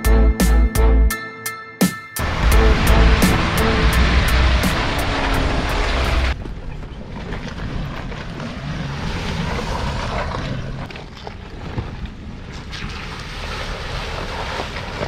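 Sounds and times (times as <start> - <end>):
music with steady beat: 0.0 - 5.1
suv engines driving slowly: 2.2 - 15.0.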